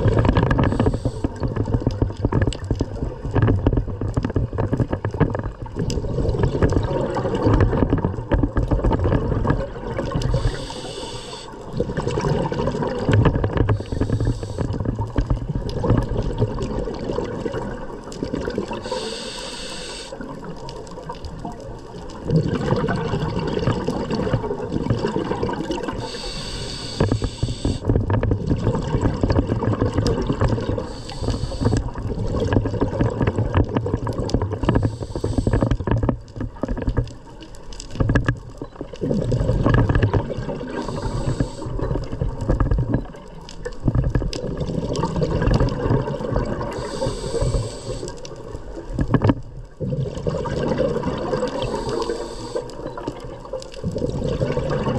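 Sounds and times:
regulator inhale hiss: 0:00.6 - 0:01.5, 0:10.2 - 0:11.7, 0:13.7 - 0:14.9, 0:18.7 - 0:20.2, 0:25.9 - 0:27.9, 0:30.8 - 0:32.0, 0:34.7 - 0:35.8, 0:40.7 - 0:42.0, 0:46.7 - 0:48.4, 0:51.5 - 0:52.9
gurgling exhaust bubbles: 0:11.7 - 0:18.9, 0:22.2 - 0:26.3, 0:27.2 - 0:35.9, 0:39.0 - 0:43.2, 0:44.4 - 0:47.9, 0:49.7 - 0:53.1, 0:53.8 - 0:54.9.

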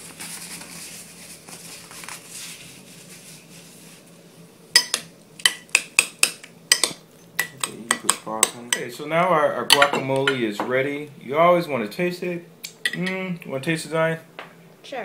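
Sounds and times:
spoon clinking on bowl: 0:04.8 - 0:05.6
spoon mixing in a bowl: 0:04.8 - 0:09.0.

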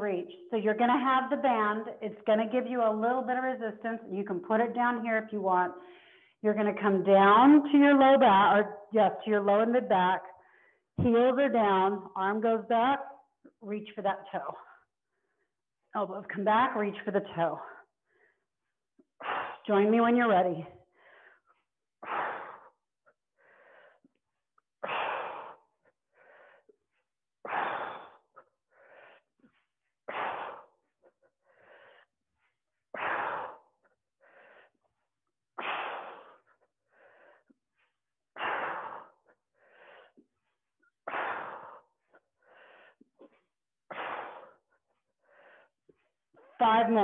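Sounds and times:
woman breathing hard: 0:05.8 - 0:06.4, 0:10.4 - 0:10.9, 0:20.8 - 0:46.2.

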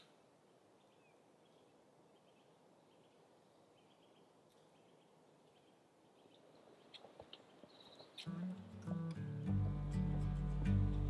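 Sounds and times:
bird chirps: 0:00.8 - 0:08.6.

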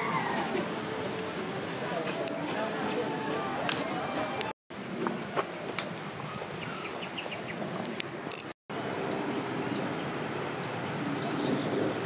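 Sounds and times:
outdoor background noise: 0:00.0 - 0:12.0
insects droning at high pitch: 0:04.7 - 0:11.6.

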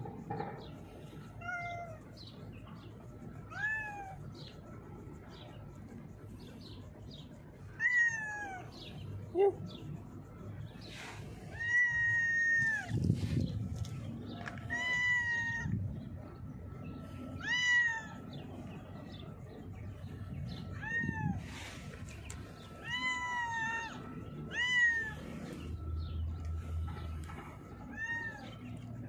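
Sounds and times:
cat meowing: 0:03.5 - 0:04.2, 0:07.7 - 0:08.8, 0:11.5 - 0:13.0, 0:14.6 - 0:15.7, 0:17.3 - 0:18.2, 0:20.6 - 0:21.5, 0:22.7 - 0:25.2, 0:27.8 - 0:28.8.

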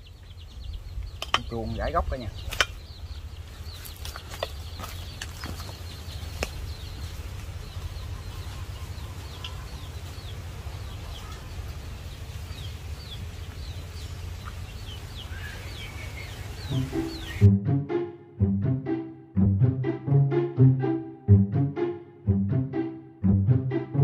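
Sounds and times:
high bird chirps: 0:14.4 - 0:17.6
music: 0:16.7 - 0:24.0.

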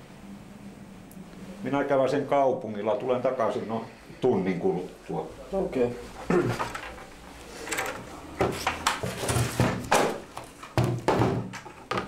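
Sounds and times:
wooden knocks and clunks: 0:08.4 - 0:12.0.

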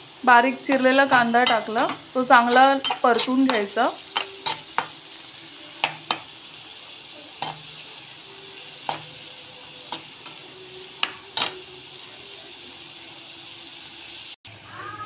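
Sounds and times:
onions sizzling in hot oil: 0:00.0 - 0:15.0
steel spatula scraping a pan: 0:00.7 - 0:06.4.

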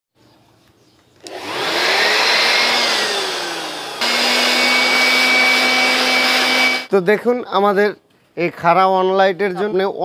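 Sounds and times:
electric blower motor whine: 0:01.2 - 0:06.9.

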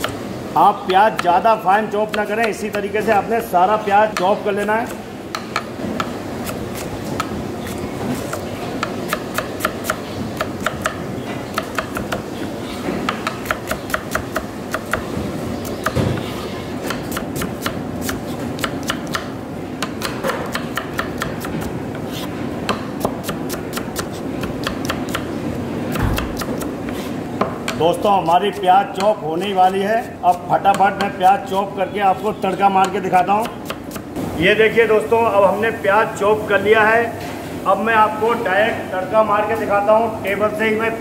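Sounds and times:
steady background noise: 0:00.0 - 0:41.0
knife chopping on cutting board: 0:13.0 - 0:25.3, 0:25.9 - 0:27.8.

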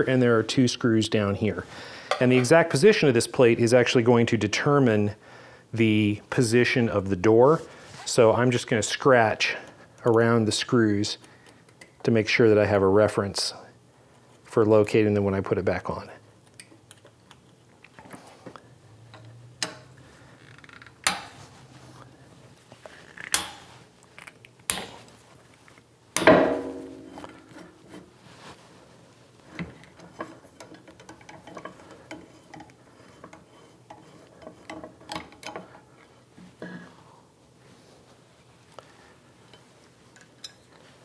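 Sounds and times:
sharp metal knocks: 0:26.2 - 0:27.5.

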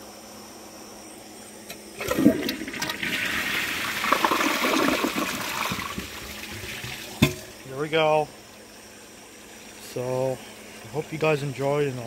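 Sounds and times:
toilet flush click: 0:02.0 - 0:07.4
toilet water rushing and draining: 0:02.0 - 0:07.5.

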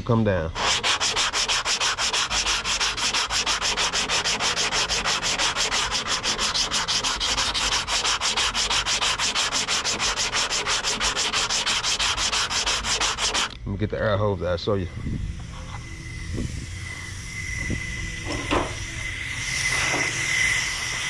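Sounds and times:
sandpaper rasping on filler: 0:00.6 - 0:13.6.

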